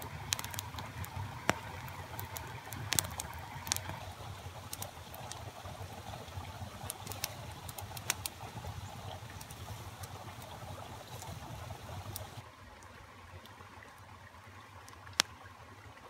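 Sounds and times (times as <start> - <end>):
campfire crackling and popping: 0.0 - 12.4.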